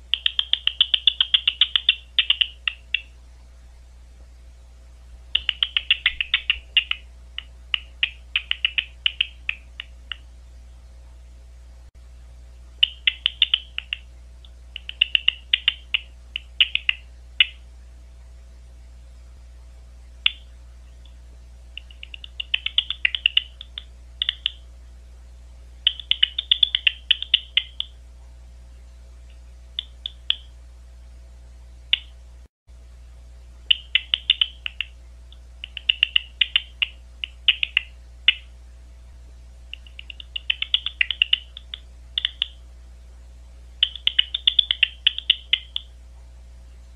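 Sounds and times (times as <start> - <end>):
bat echolocation clicks: 0.0 - 3.1, 5.3 - 10.2, 12.8 - 17.6, 20.2 - 21.2, 21.8 - 24.6, 25.9 - 27.9, 29.8 - 30.5, 33.7 - 38.5, 39.7 - 42.6, 43.8 - 45.9
faint steady hum: 0.0 - 46.9.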